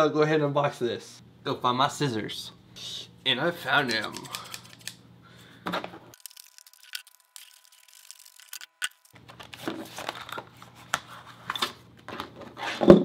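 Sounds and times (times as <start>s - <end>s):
plastic crackling and crinkling: 6.2s - 11.1s.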